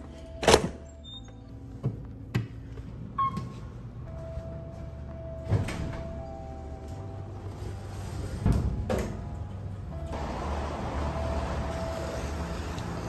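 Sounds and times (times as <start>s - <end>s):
elevator running: 3.0s - 13.0s
elevator doors sliding open: 5.2s - 13.0s.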